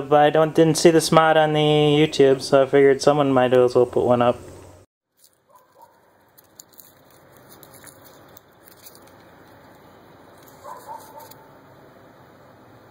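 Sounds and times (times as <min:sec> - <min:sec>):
light ticks and rustles: 0:05.2 - 0:11.4.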